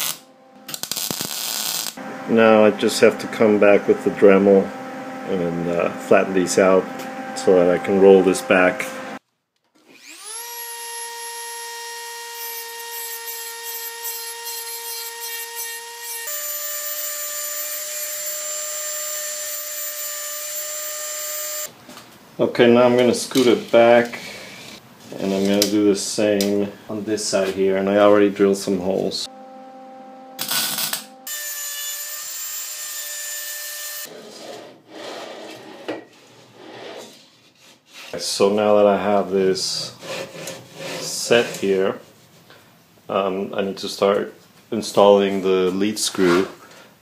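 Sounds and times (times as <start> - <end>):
rotary tool high whine: 0.0 - 9.2, 9.8 - 21.7, 29.2 - 34.1
drawer slide rubbing: 34.1 - 38.2
grinding rasp on steel: 39.7 - 41.8.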